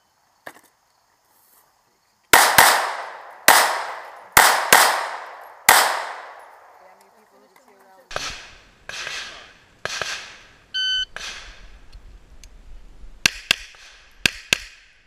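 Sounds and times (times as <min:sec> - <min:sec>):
pistol shots echoing: 0:02.3 - 0:06.8, 0:08.1 - 0:10.4
shot timer electronic beep: 0:10.8 - 0:11.1.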